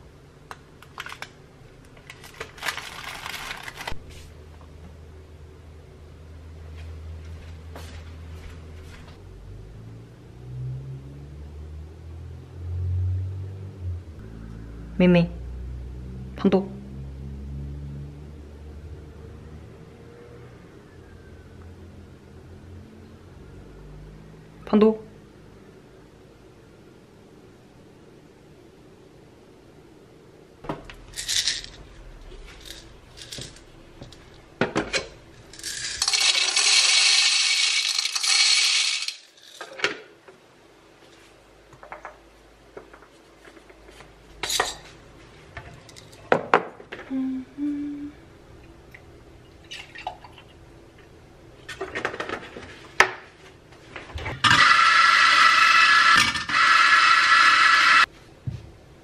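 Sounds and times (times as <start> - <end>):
coffee grinder running: 35.6 - 39.6, 54.4 - 58.1.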